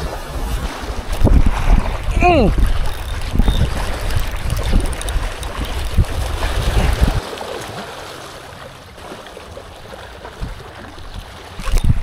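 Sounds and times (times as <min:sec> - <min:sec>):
wind buffeting microphone: 0:00.0 - 0:07.2, 0:10.2 - 0:12.0
waves lapping on rocky shore: 0:00.0 - 0:12.0.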